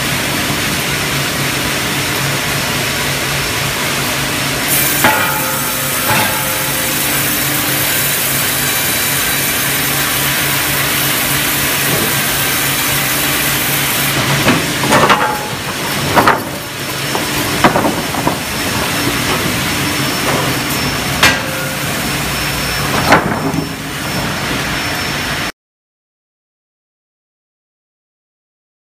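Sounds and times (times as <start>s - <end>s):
band saw and machinery din: 0.0s - 25.5s
timber knocking on steel rollers: 4.7s - 22.2s.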